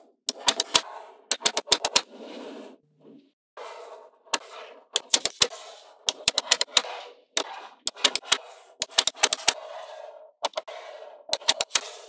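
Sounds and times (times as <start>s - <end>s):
magnetic balls clicking: 0.3s - 2.1s, 5.0s - 9.6s, 11.3s - 12.0s.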